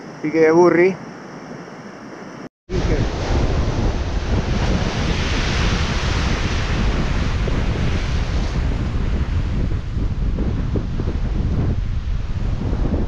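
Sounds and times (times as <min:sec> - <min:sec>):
wind buffeting microphone: 0:00.0 - 0:13.0
sea surf washing: 0:02.7 - 0:13.0.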